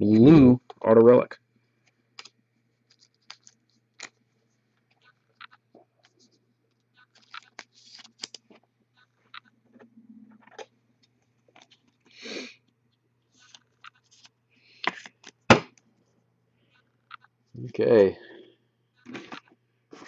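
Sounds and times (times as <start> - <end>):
light clicks and scrapes of cards: 1.6 - 9.8, 10.5 - 15.4.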